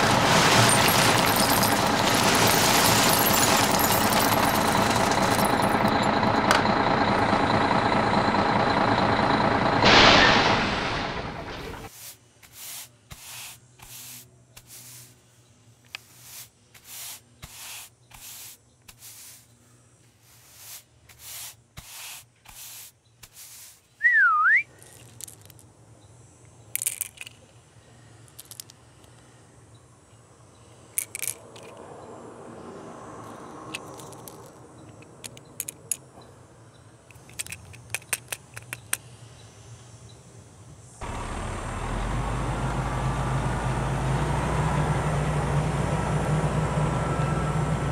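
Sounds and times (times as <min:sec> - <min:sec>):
toy truck rolling on concrete: 0:00.0 - 0:06.7, 0:24.7 - 0:25.7, 0:26.6 - 0:27.6, 0:28.2 - 0:29.2, 0:30.9 - 0:31.8, 0:33.2 - 0:36.2, 0:37.1 - 0:39.0
falling and rising whistle: 0:24.0 - 0:24.7, 0:46.6 - 0:47.9
small clicks: 0:33.7 - 0:36.0, 0:37.1 - 0:39.1.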